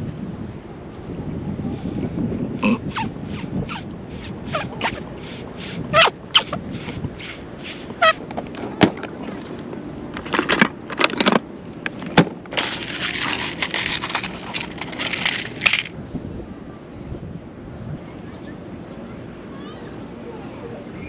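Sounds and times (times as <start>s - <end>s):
plastic cases clicking: 12.5s - 15.9s
rustling: 12.5s - 15.9s.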